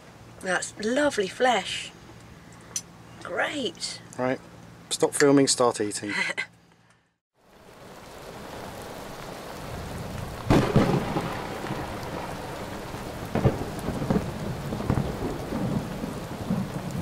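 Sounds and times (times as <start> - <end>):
steady rain falling: 7.4 - 17.0
thunderclaps: 8.2 - 17.0.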